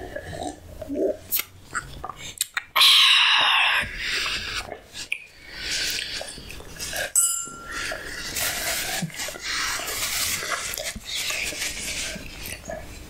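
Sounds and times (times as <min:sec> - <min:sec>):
ringing clink of tableware: 0:07.2 - 0:07.7.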